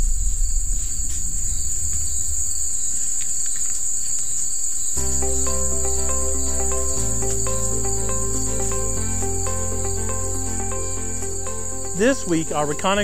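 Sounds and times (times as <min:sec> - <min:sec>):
low rumble: 0:00.0 - 0:02.5
high-pitched insect chorus trilling: 0:00.0 - 0:13.0
music with chords and bass: 0:05.0 - 0:13.0.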